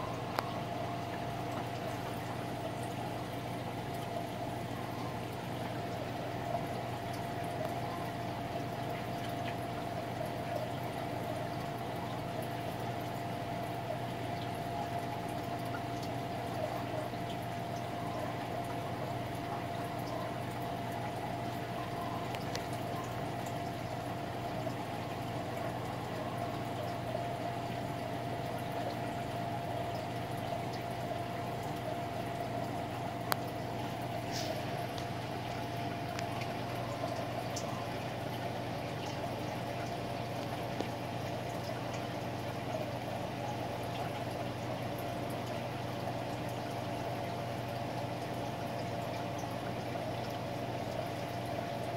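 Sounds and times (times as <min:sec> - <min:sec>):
low pump hum: 0:00.0 - 0:51.9
moving water: 0:00.0 - 0:51.9.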